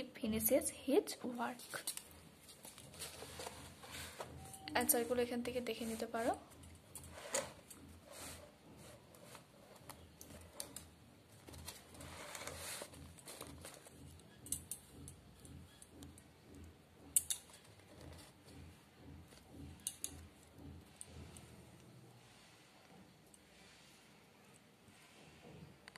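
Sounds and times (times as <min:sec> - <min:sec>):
handling rustles and light clicks: 0:01.2 - 0:22.0.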